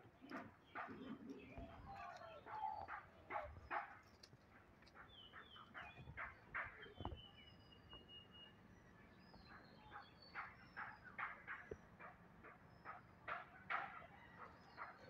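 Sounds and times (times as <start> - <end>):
bird chirps: 4.9 - 11.8.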